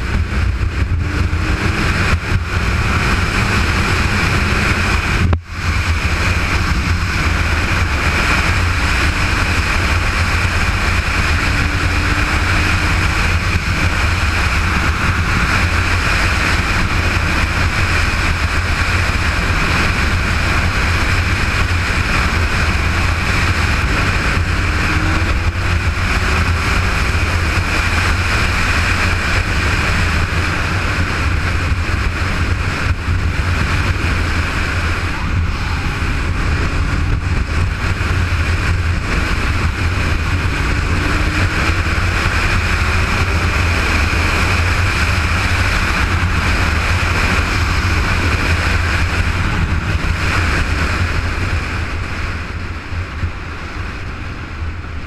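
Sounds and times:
motorcycle engine drone: 0:00.0 - 0:55.0
wind and road noise: 0:00.0 - 0:55.0.

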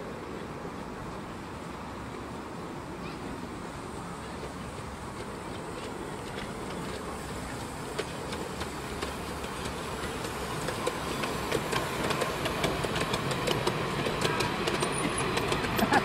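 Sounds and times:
miniature train rumbling: 0:00.0 - 0:16.0
wheels clicking on track: 0:03.6 - 0:16.0.

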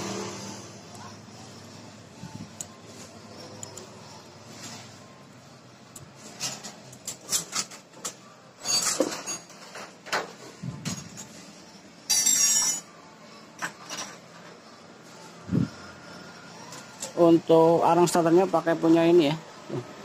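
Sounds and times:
small metal parts clinking: 0:06.0 - 0:10.0, 0:12.1 - 0:12.9.

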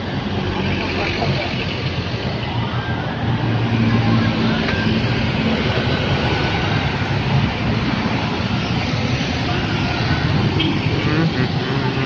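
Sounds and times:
van and truck passing: 0:00.0 - 0:12.0
scooters droning past: 0:08.1 - 0:12.0.

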